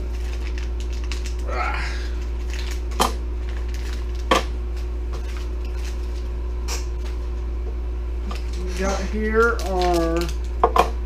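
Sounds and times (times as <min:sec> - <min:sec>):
packaging rustling: 0:00.0 - 0:07.3, 0:08.2 - 0:10.6
steady low hum: 0:00.0 - 0:11.0.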